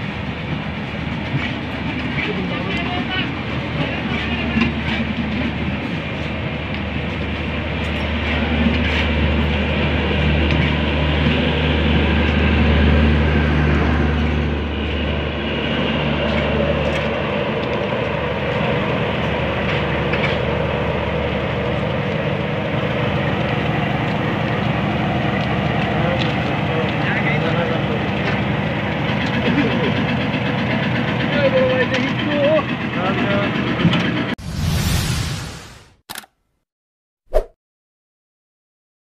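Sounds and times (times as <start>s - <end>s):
train wheels rumbling on rails: 0.0s - 34.4s
deep engine hum: 6.6s - 31.3s.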